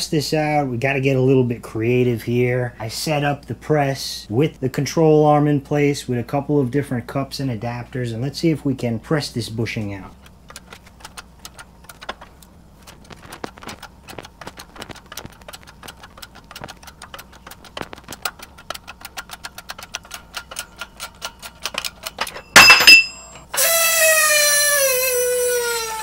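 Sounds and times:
hydraulic press ticking: 10.2 - 24.0
loud bang of bushing breaking free: 22.5 - 23.8.

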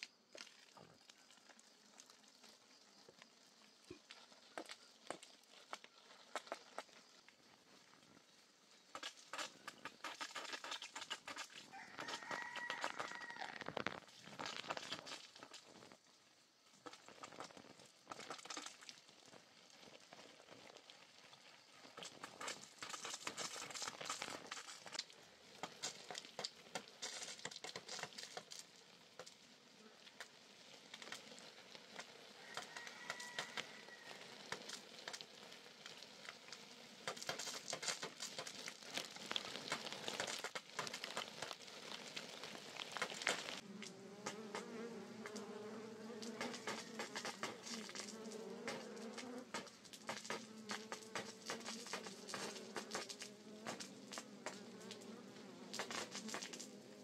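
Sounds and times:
water pattering on leaves: 0.0 - 8.0, 8.8 - 16.2, 16.8 - 44.6, 46.2 - 57.0
water spraying from garden hose: 0.0 - 57.0
low insect buzz: 43.6 - 49.6.

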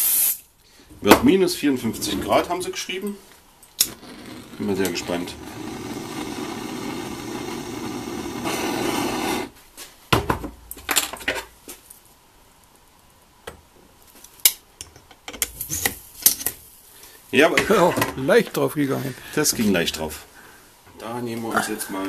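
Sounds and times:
gas torch hissing: 0.0 - 0.5, 3.8 - 9.6.

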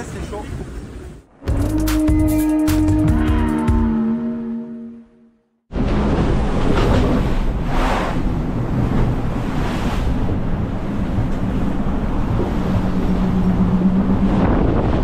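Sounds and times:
wind and sea rushing: 0.0 - 15.0
wind buffeting microphone: 5.7 - 15.0.

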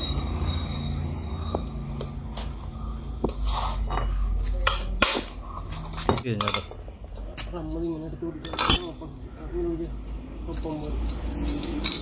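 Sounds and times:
socket wrench metal clinks: 8.4 - 9.0, 10.5 - 12.0.

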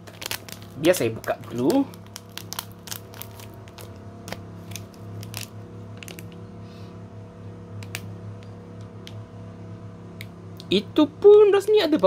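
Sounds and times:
foil crackling: 0.0 - 6.4
steady low hum: 0.0 - 12.0.

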